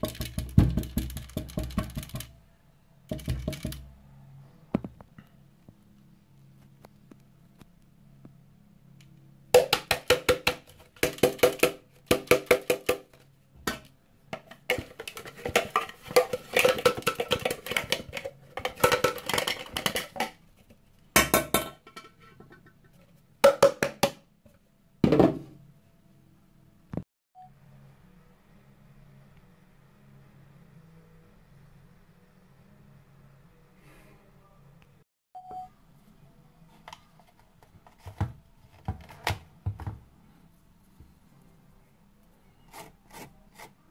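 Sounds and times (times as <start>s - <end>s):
plastic container knocking on sink: 0.0s - 2.3s, 3.1s - 3.8s, 9.6s - 20.4s, 23.4s - 24.2s, 25.0s - 25.6s.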